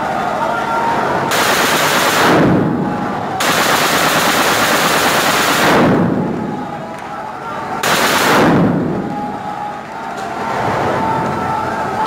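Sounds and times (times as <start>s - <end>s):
automatic gunfire echoing: 1.3s - 2.8s, 3.4s - 6.3s, 7.8s - 9.0s.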